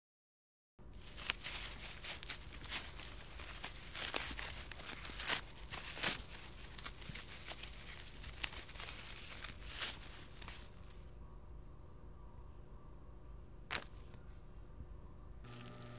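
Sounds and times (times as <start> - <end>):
low hum: 0.8 - 15.9
crackles and rustling clicks: 1.0 - 11.1.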